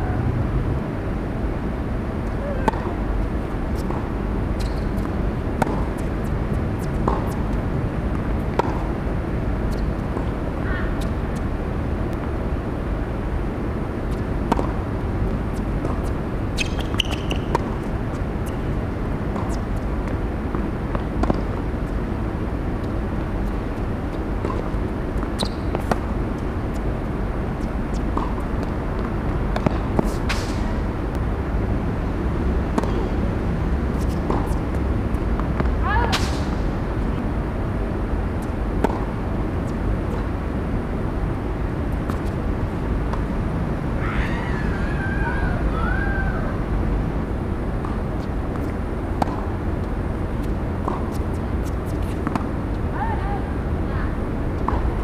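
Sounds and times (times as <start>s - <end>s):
low background rumble: 0.0s - 55.0s
tennis ball bouncing: 2.2s - 9.0s, 14.0s - 22.0s, 22.6s - 30.8s, 32.6s - 37.2s, 38.3s - 40.3s, 47.8s - 53.1s, 54.6s - 55.0s
tennis racket hitting ball: 47.8s - 49.5s, 50.1s - 52.5s.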